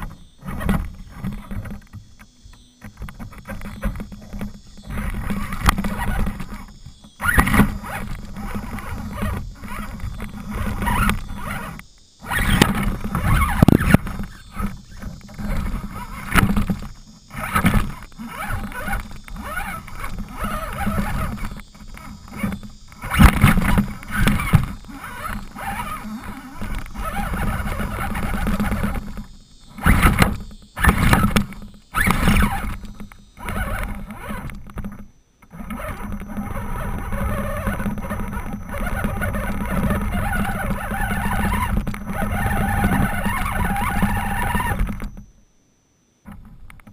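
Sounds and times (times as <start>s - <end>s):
electric motor whining: 0.0s - 45.3s.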